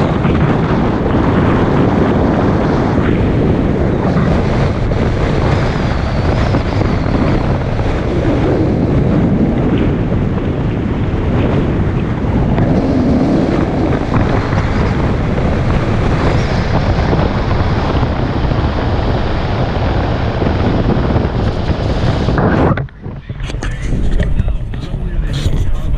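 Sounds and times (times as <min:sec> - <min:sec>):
road and tyre noise: 0:00.0 - 0:25.9
wind buffeting microphone: 0:00.0 - 0:25.9.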